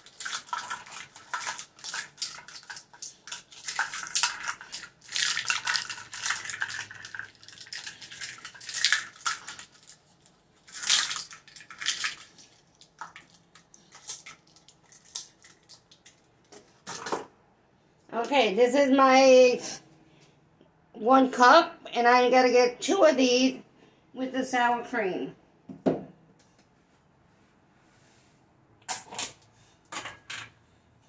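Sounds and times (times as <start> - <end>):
plastic measuring cups clattering: 0.0 - 17.3.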